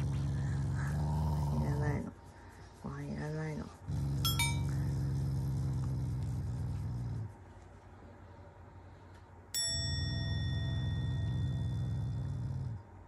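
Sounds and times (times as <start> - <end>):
dog growling: 0.0 - 2.2, 3.1 - 7.4, 10.7 - 13.0.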